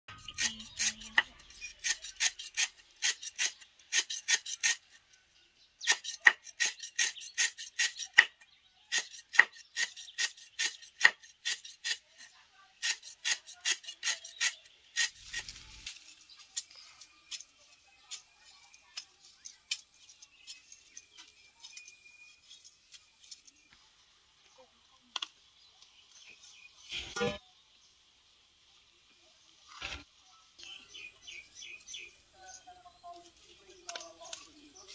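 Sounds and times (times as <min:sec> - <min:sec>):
cleaver chopping on wooden board: 0:09.0 - 0:12.0.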